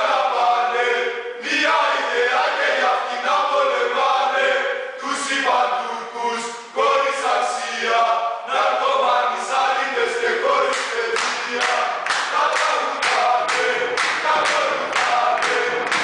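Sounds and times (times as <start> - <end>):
group of voices chanting: 0.0 - 16.0
rhythmic hand claps: 10.4 - 16.0.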